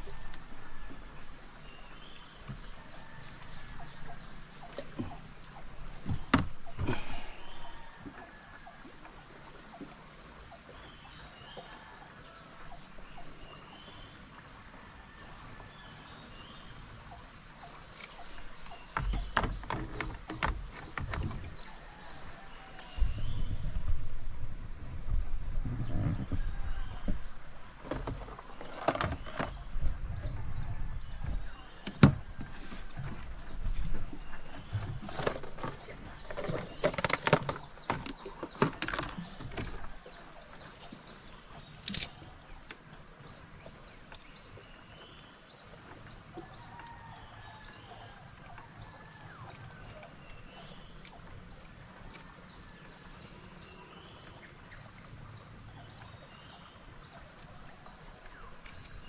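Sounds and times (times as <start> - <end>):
knocks and bumps in a boat: 0.0 - 8.4, 17.6 - 53.4.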